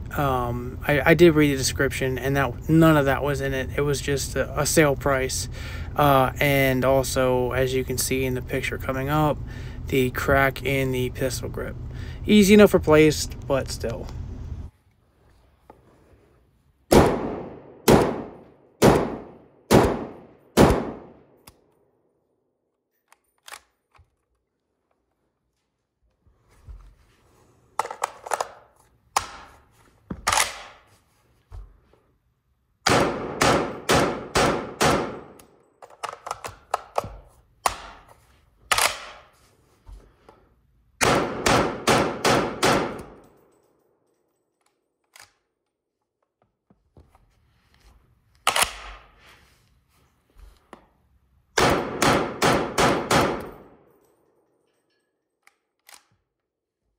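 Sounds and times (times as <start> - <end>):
rifle shots echoing: 16.9 - 21.4, 32.9 - 35.4, 41.0 - 43.2, 51.6 - 53.8.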